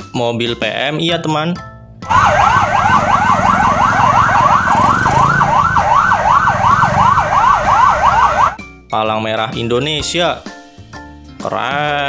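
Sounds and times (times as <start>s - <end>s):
ambulance siren yelping: 2.1s - 8.6s
low traffic rumble: 2.1s - 8.6s.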